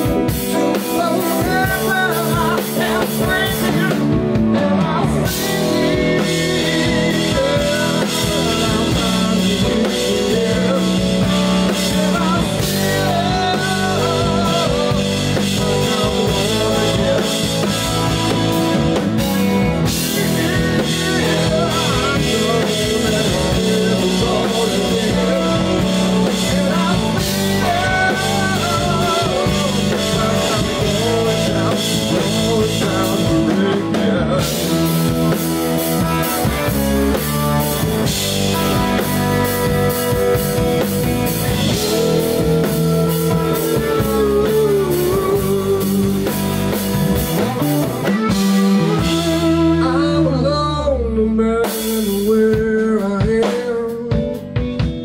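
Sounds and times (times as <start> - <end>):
drum kit: 0.0 - 50.6, 51.4 - 55.0
electric bass guitar: 0.0 - 55.0
electric guitar: 0.0 - 55.0.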